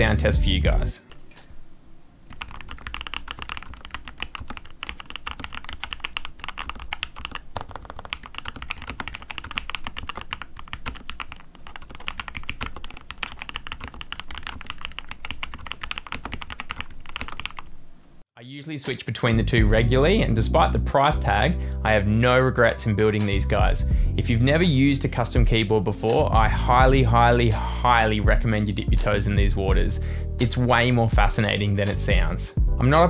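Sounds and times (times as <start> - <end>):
fast mechanical keyboard typing: 2.3 - 17.7.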